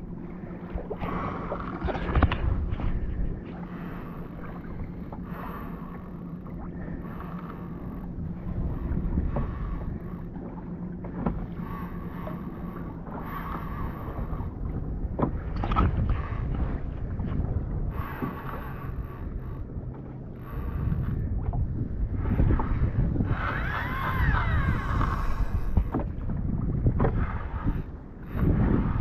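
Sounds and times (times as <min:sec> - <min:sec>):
water lapping against kayak hull: 0:00.0 - 0:29.0
wind buffeting microphone: 0:13.8 - 0:29.0.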